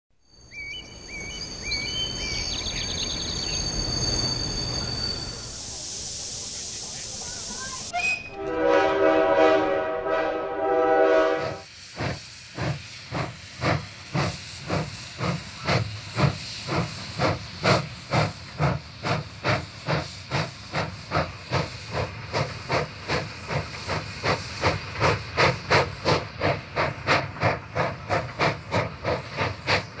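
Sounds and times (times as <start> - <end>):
steam locomotive chuffing: 0.6 - 30.0
steam locomotive whistle: 0.7 - 5.8, 7.5 - 11.7.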